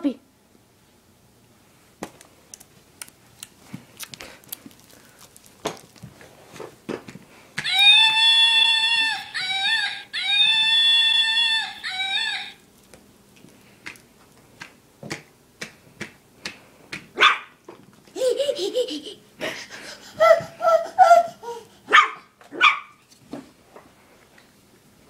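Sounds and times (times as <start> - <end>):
low warbling cry: 7.6 - 12.6
puppy whining: 7.6 - 12.6, 20.2 - 22.2.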